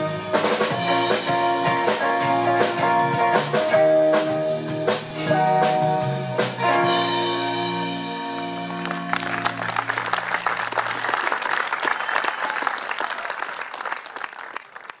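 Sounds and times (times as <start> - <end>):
electric guitar chord ringing: 0.0 - 9.8
audience applause: 8.4 - 15.0.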